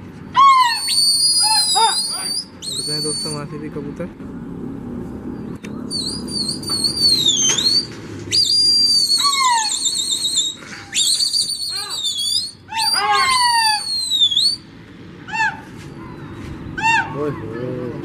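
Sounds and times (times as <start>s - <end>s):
shrill warbling whistles: 0.4s - 3.5s, 5.9s - 14.7s.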